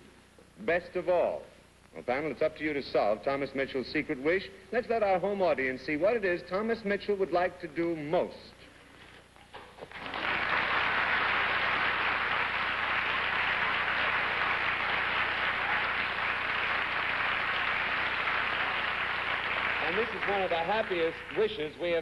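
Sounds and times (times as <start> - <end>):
audience applauding: 9.8 - 22.0.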